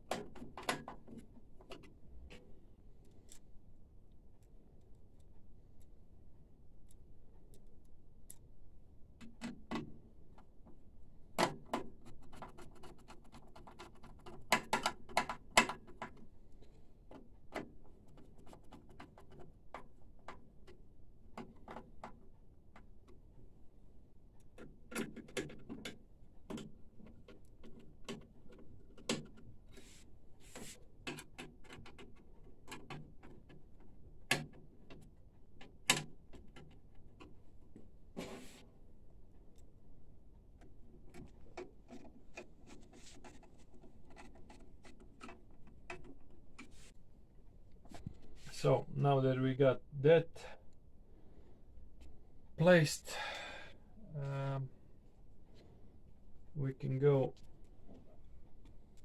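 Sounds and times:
clicks and knocks of parts: 0.0s - 3.5s, 9.1s - 38.1s, 40.4s - 47.0s.

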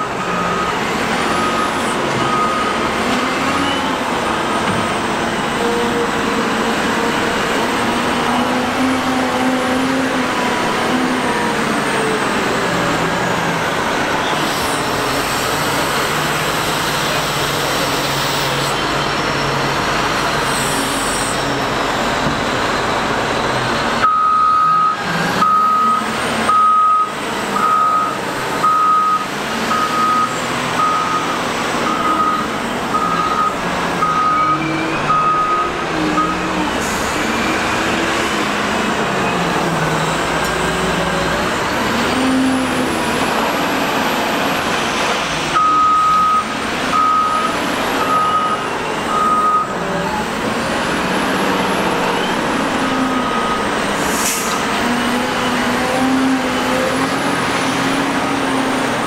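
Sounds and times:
reversing alarm beeping: 0.0s - 3.8s, 24.0s - 36.6s, 45.6s - 49.8s, 52.1s - 53.8s
wheel loader diesel engine: 0.0s - 59.0s.

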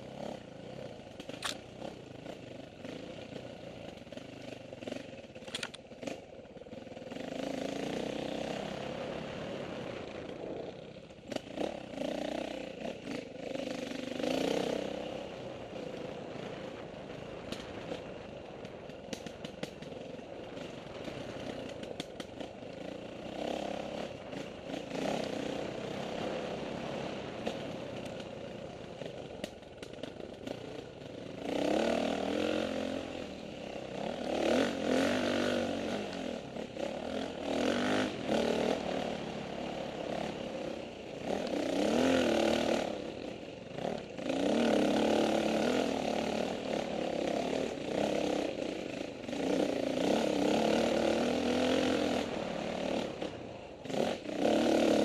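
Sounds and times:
dirt bike engine revving: 10.6s - 15.4s, 22.8s - 27.7s, 30.5s - 55.0s.

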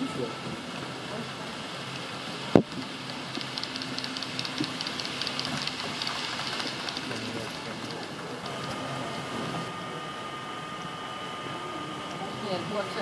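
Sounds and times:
model train wheels clicking: 3.0s - 8.8s.

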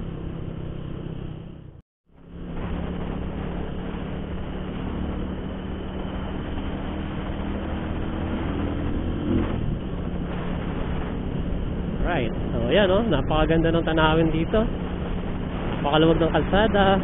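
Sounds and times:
motorcycle engine running: 0.0s - 17.0s
road noise: 0.0s - 17.0s
wind rush: 2.2s - 17.0s.

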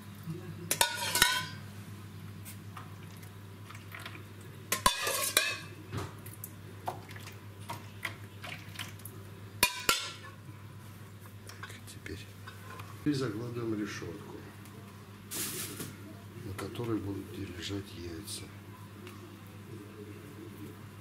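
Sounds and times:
glass cup clinking against steel pot: 0.7s - 1.6s.

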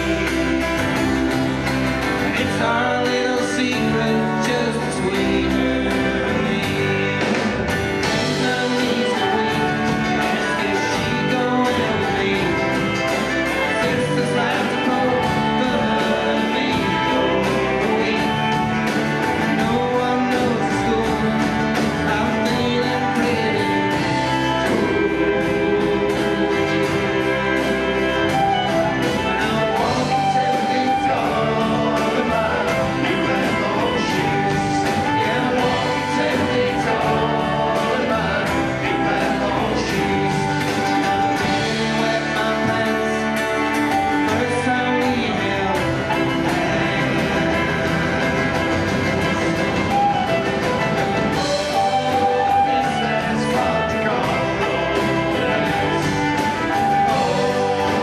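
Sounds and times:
folk band playing: 0.0s - 58.0s.

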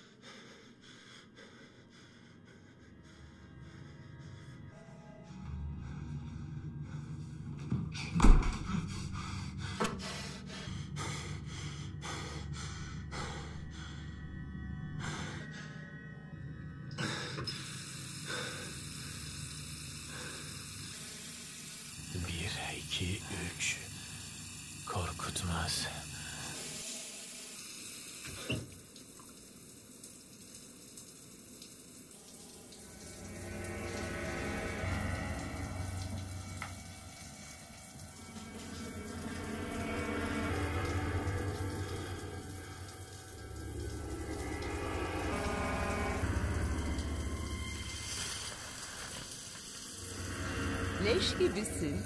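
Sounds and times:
man panting hard: 0.0s - 4.7s, 5.8s - 14.1s
steady low drone: 0.0s - 26.9s, 32.1s - 52.0s
water running from a tap: 17.1s - 52.0s.

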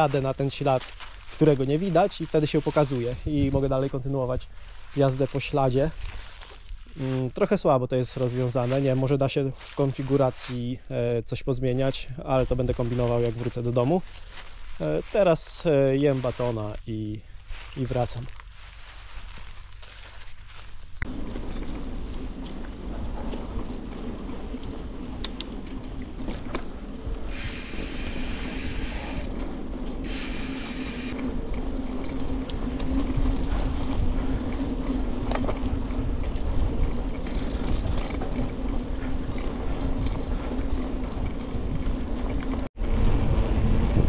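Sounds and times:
bike clicks and rattles: 0.0s - 7.3s, 11.8s - 42.7s
bicycle tyres rolling rumble: 0.0s - 44.0s
short hissing: 27.3s - 29.3s, 30.1s - 31.2s.

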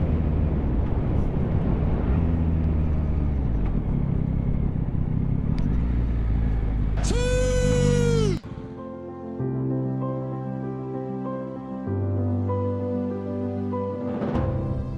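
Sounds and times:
motorcycle engine running: 2.4s - 8.4s.

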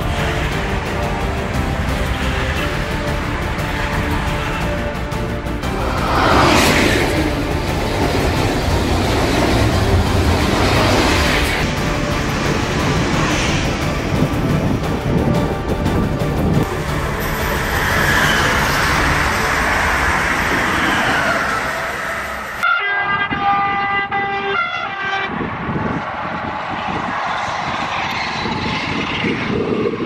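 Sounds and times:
train rushing past: 0.0s - 30.0s
train horn blasts: 16.7s - 25.6s.

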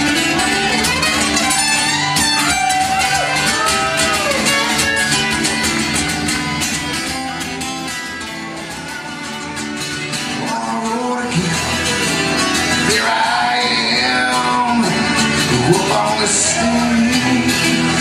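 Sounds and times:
acoustic guitars strummed fast: 0.0s - 18.0s.

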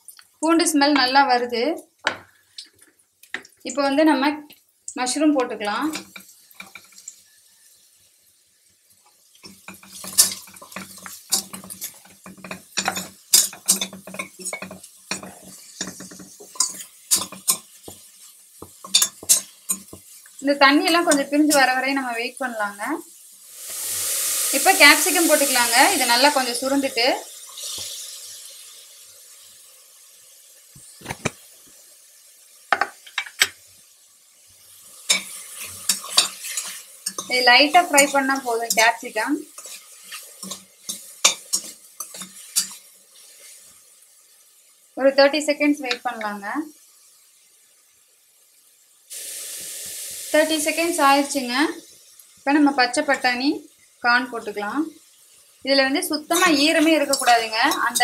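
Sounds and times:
mushrooms sizzling in a pan: 0.0s - 58.0s
utensil stirring and tapping pan: 5.4s - 7.2s, 9.0s - 22.0s, 32.7s - 33.6s, 35.0s - 43.6s, 56.1s - 58.0s
utensil scraping a pan: 35.1s - 43.6s.

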